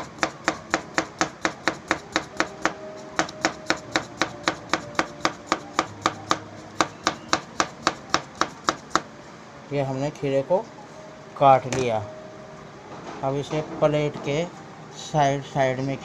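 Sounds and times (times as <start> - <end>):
knife tapping cutting board: 0.1 - 9.1.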